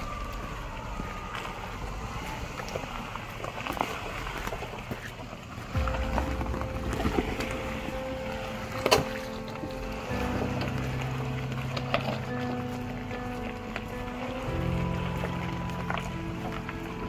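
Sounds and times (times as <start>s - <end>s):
vehicle engine low rumble: 0.0s - 17.0s
background music with held notes: 5.8s - 17.0s.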